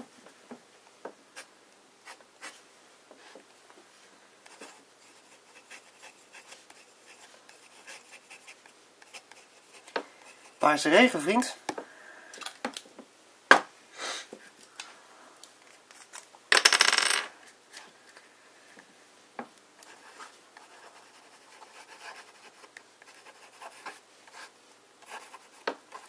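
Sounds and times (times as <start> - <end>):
pen nib scratching on paper: 4.5 - 10.6, 19.8 - 26.0.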